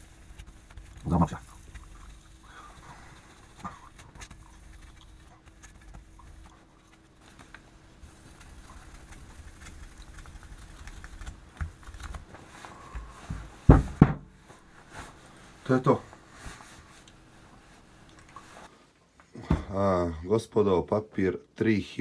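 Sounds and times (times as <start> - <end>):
heavy thumps on a bench: 13.0 - 14.4.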